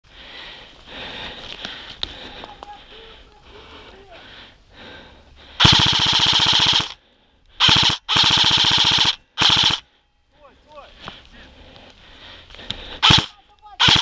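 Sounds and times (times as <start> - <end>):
airsoft rifle full-auto bursts: 5.6 - 7.0, 7.6 - 9.9, 13.0 - 14.0.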